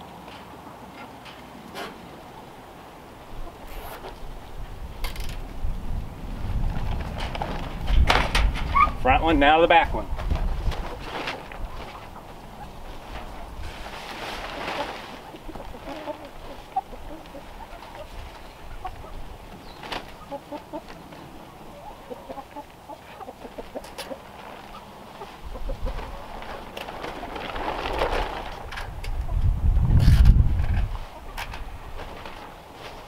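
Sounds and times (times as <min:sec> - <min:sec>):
tarp rustling: 0:01.1 - 0:04.6, 0:05.9 - 0:29.2, 0:30.1 - 0:33.0
wind rumble on microphone: 0:03.2 - 0:14.0, 0:25.4 - 0:32.4
hen clucking: 0:10.8 - 0:26.3.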